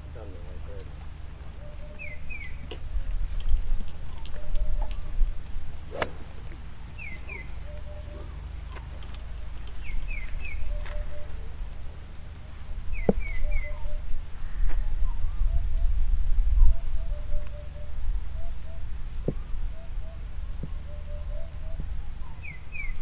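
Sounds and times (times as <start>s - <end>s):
steady low rumble: 0.0s - 20.6s
small birds chirping: 0.1s - 16.0s
golf club striking ball: 5.9s - 6.4s.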